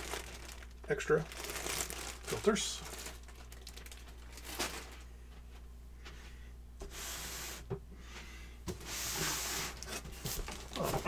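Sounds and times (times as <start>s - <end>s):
packaging rustling: 0.0s - 5.1s, 9.7s - 11.0s.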